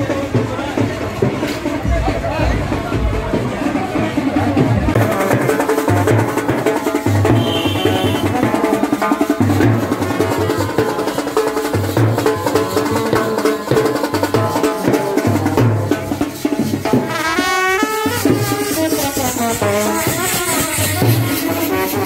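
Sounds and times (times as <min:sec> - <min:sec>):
bass drum beat: 0:00.0 - 0:22.0
side drum beat: 0:00.0 - 0:22.0
street brass band playing: 0:00.0 - 0:22.0
trumpet melody: 0:05.0 - 0:09.4, 0:16.9 - 0:22.0.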